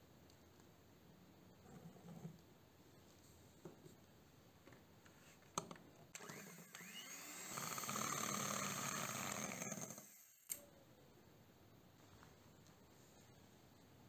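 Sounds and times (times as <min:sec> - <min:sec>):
hand mixer motor whine: 0:06.2 - 0:10.5.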